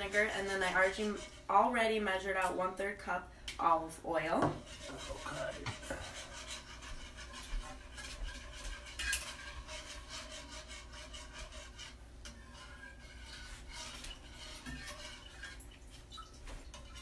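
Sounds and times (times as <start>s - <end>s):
whisk scraping a saucepan: 0.0s - 17.0s
whisk clink: 6.0s - 15.8s.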